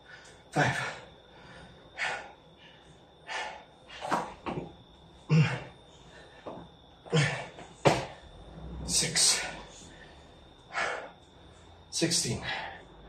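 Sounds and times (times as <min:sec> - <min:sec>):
person breathing hard: 0:00.0 - 0:04.4, 0:09.2 - 0:13.0
thuds on exercise mat: 0:07.8 - 0:08.2.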